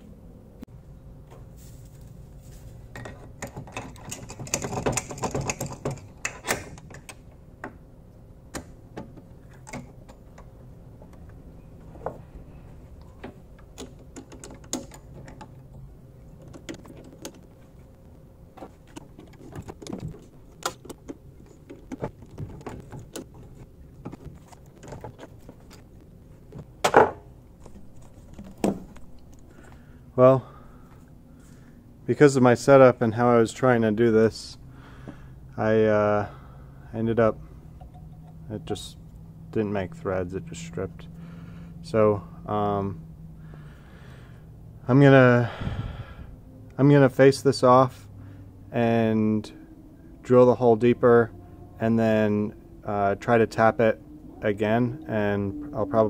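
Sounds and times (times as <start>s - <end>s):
metal clicks and rattles: 2.9s - 7.3s, 13.0s - 17.7s, 18.6s - 25.9s.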